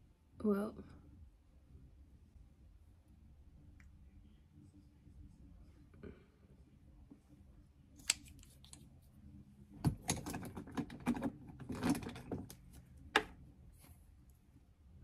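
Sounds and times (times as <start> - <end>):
makeup items clicking and rattling: 9.9 - 12.6.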